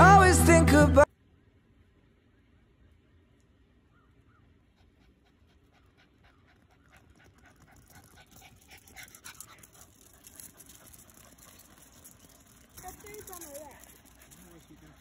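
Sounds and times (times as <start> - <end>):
dog panting rapidly: 4.6 - 15.0.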